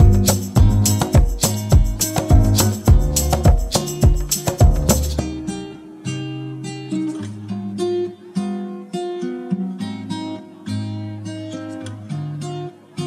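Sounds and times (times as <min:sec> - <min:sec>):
low bass line: 0:00.0 - 0:05.4
acoustic guitar melody: 0:00.0 - 0:13.0.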